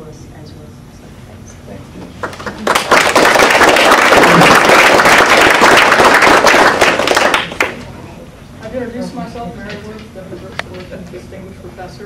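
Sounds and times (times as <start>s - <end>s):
audience applauding: 2.2s - 7.8s.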